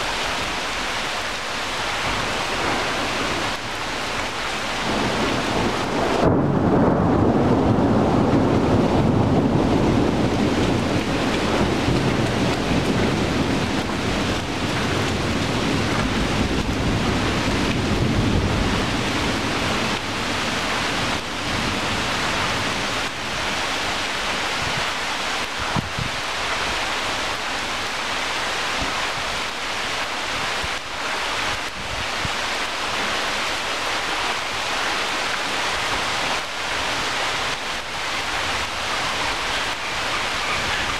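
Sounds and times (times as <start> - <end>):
rain falling through leaves: 0.0 - 40.9
low roll of thunder: 2.0 - 23.6.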